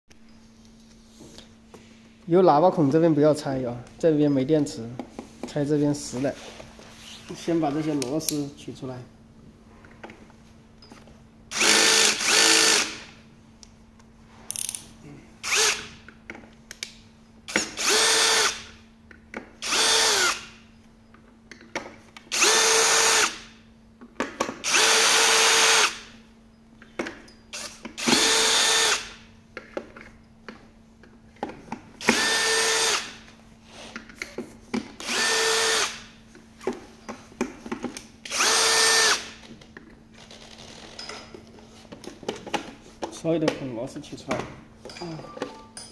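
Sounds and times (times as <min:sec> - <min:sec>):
drill motor whining: 0:11.5 - 0:13.0, 0:15.4 - 0:15.9, 0:17.5 - 0:18.6, 0:19.6 - 0:20.5, 0:22.3 - 0:23.4, 0:24.6 - 0:26.0, 0:27.6 - 0:29.2, 0:32.0 - 0:33.2, 0:35.0 - 0:36.0, 0:38.3 - 0:39.3.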